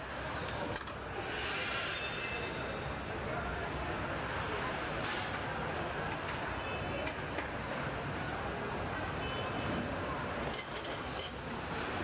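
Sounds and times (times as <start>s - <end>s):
metallic clinks: 10.4s - 11.5s.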